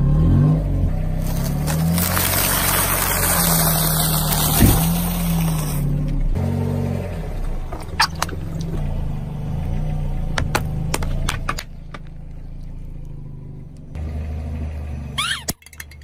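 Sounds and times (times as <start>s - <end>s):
car engine running: 0.0s - 16.0s
tyre crushing plastic objects: 1.2s - 5.8s.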